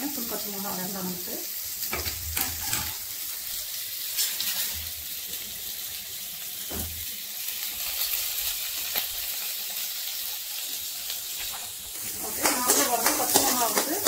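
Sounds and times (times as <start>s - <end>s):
onions sizzling in oil: 0.0s - 14.0s
steel ladle knocking pan: 12.3s - 14.0s.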